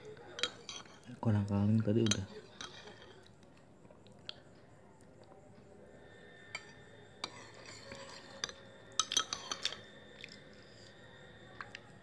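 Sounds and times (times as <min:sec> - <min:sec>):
spoon clinking on dish: 0:00.3 - 0:01.0, 0:01.9 - 0:03.2, 0:06.5 - 0:09.9
chewing: 0:09.0 - 0:10.9.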